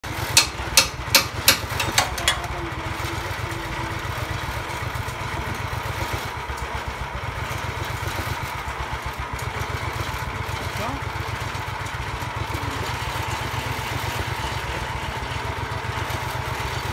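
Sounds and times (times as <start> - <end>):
sawmill engine throbbing: 0.0 - 16.9
sharp knocks: 0.4 - 2.5.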